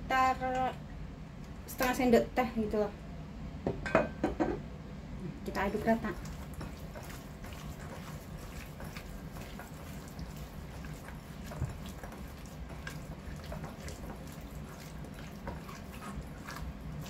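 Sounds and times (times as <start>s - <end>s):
meat squelching in marinade: 6.0s - 17.0s.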